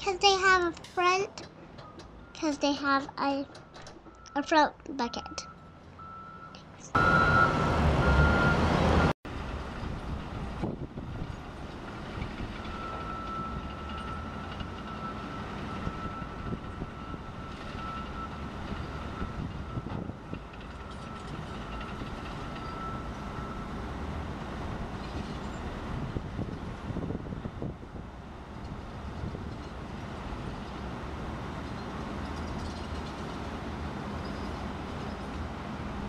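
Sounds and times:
diesel loader engine: 0:00.0 - 0:36.0
back-up alarm beeping: 0:04.1 - 0:08.6
high alarm tone: 0:04.2 - 0:08.6.

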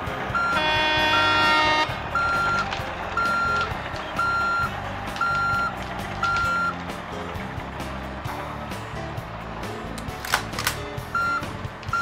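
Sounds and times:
reversing alarm beeping: 0:00.3 - 0:06.8, 0:11.2 - 0:12.0.

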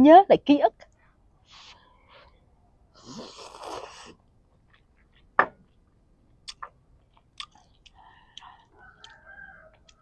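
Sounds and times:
noodles slurping: 0:03.0 - 0:04.2.

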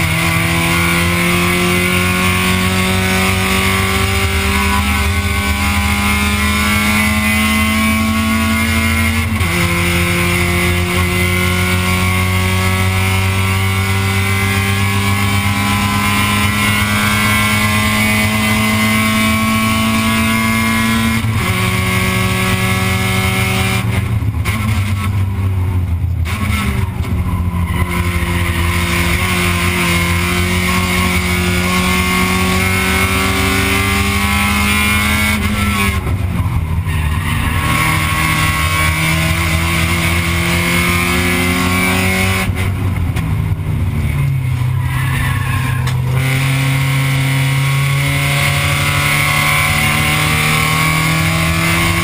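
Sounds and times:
race car engine at high revs: 0:00.0 - 0:52.0.

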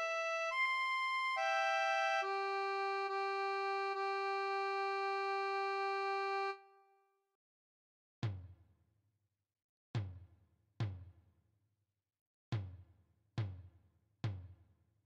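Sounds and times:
keyboard synthesizer chords: 0:00.0 - 0:06.6.

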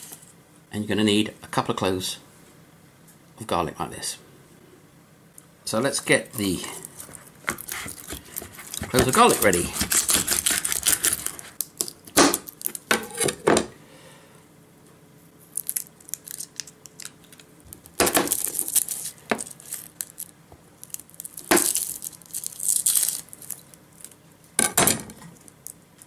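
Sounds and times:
garlic skins crackling and tearing: 0:06.4 - 0:12.9, 0:15.4 - 0:24.2.

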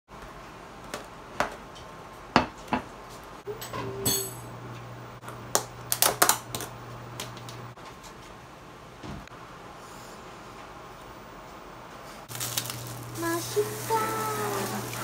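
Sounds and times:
ringing clink of dish: 0:03.5 - 0:04.5.

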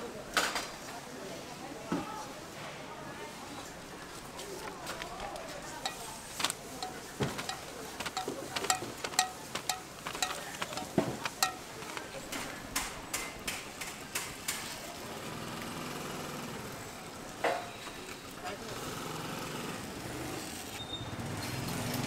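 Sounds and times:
metal tongs clicking on mold: 0:05.8 - 0:06.1, 0:06.8 - 0:14.3.

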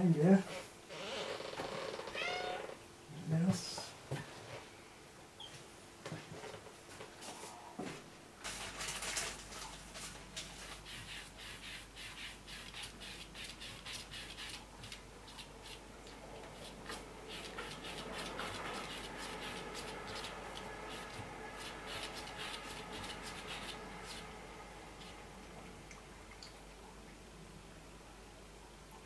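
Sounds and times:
cat scratching at table: 0:10.4 - 0:15.8, 0:16.4 - 0:24.3.

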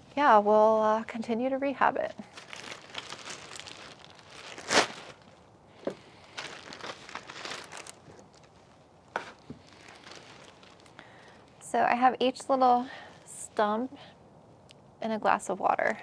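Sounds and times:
plastic bag crinkling: 0:02.1 - 0:11.6.

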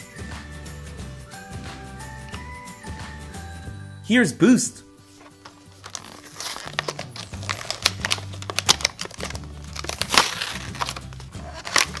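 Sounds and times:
background music: 0:00.0 - 0:12.0
plastic packaging crinkling: 0:05.1 - 0:12.0.

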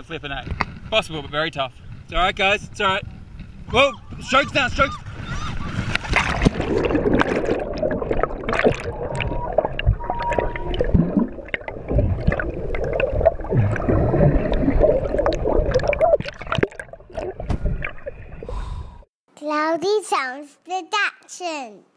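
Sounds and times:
underwater gurgling and bubbling: 0:06.1 - 0:18.5.

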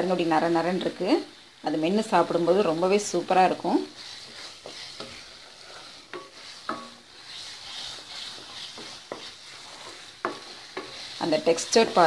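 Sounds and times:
milk mixture sizzling in pan: 0:00.0 - 0:12.0
spatula scraping pan: 0:00.0 - 0:12.0
spatula knocking on pan: 0:06.1 - 0:07.1, 0:08.3 - 0:12.0.

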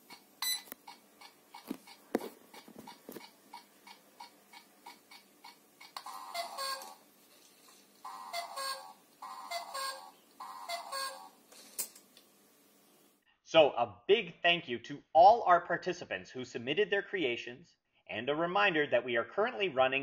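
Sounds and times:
two-note cuckoo call: 0:08.1 - 0:11.3.

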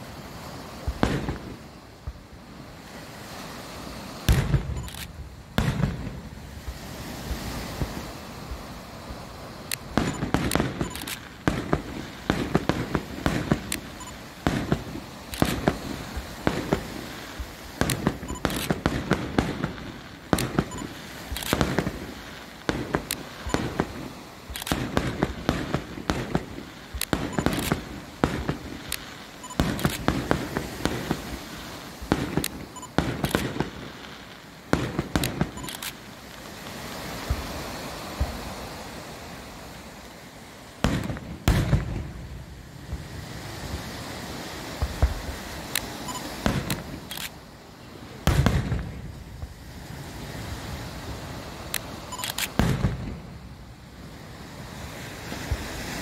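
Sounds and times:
fireworks crackling: 0:00.0 - 0:56.0
fireworks shells bursting: 0:09.7 - 0:38.6, 0:44.8 - 0:47.3.

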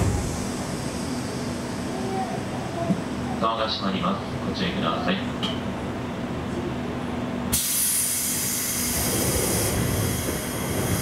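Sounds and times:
steady low hum: 0:00.0 - 0:07.5
pneumatic train door hissing: 0:07.5 - 0:11.0.

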